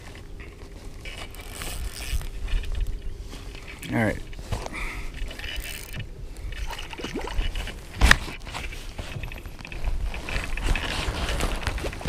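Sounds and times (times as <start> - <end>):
water sloshing: 5.2 - 9.8.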